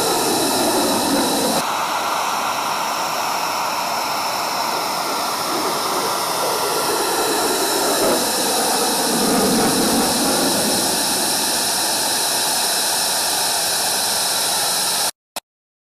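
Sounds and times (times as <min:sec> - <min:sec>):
fighter jet afterburner roar: 0:00.0 - 0:14.2.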